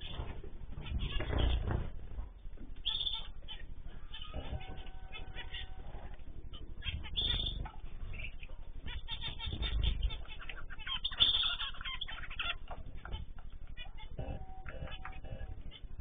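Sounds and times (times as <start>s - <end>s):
low rumbles: 0.0s - 11.2s
small birds chirping: 0.0s - 16.0s.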